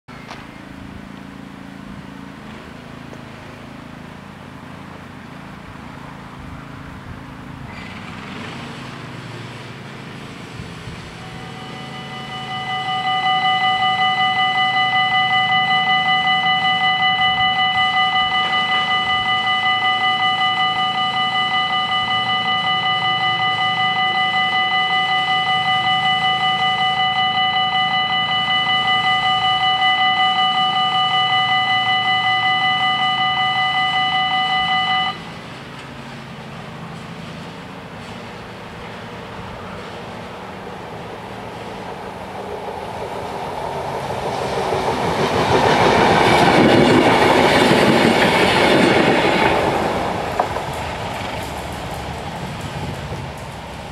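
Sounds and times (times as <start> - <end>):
level crossing bells ringing: 11.2 - 35.3.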